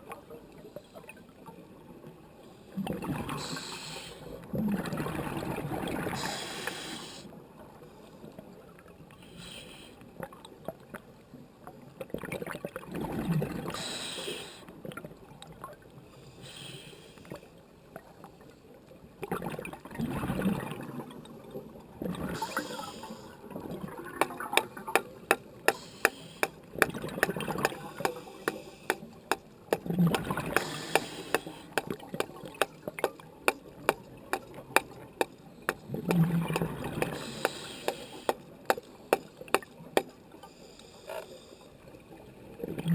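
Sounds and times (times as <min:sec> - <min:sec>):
diver breathing through regulator: 0:03.4 - 0:04.3, 0:06.2 - 0:07.3, 0:13.7 - 0:14.6, 0:16.2 - 0:17.4, 0:25.7 - 0:26.6, 0:27.6 - 0:29.1, 0:30.5 - 0:31.9, 0:37.0 - 0:38.4
exhaled bubbles gushing: 0:04.5 - 0:06.2, 0:12.1 - 0:13.7, 0:19.3 - 0:21.2, 0:29.8 - 0:30.8, 0:35.8 - 0:37.3.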